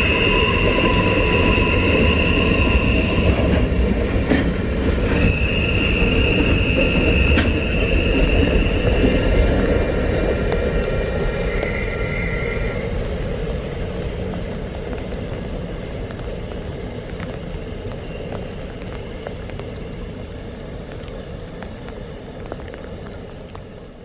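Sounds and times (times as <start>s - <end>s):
high wheel squeal: 0.0s - 10.0s, 11.4s - 16.6s
freight train rumbling: 0.0s - 24.0s.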